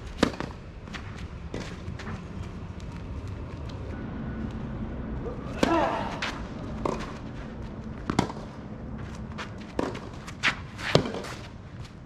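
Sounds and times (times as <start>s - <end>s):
shoes moving on court: 0.1s - 4.0s, 5.5s - 12.0s
racket hitting tennis ball: 0.2s - 0.6s, 5.5s - 7.2s, 8.0s - 8.6s, 9.4s - 11.5s
ball bounces: 8.0s - 8.5s.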